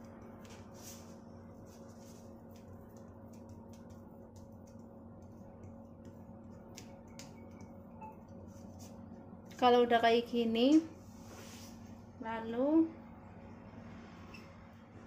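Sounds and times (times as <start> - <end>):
faint steady hum: 0.0 - 15.0
fork tapping dough: 2.4 - 8.4.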